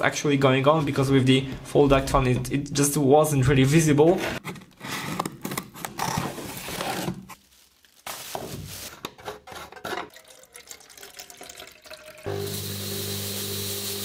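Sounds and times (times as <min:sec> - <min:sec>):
cardboard scraping and rustling: 0:04.2 - 0:07.4, 0:08.0 - 0:09.9.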